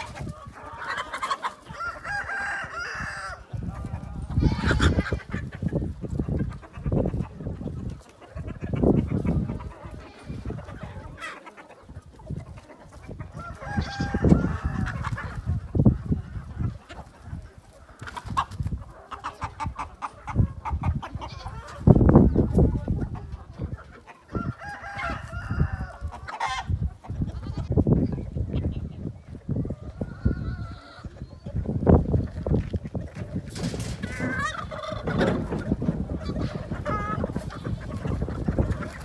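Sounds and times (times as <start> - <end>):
chickens clucking: 0.0 - 39.0
rooster crowing: 1.7 - 3.4, 13.4 - 14.9, 24.3 - 26.0.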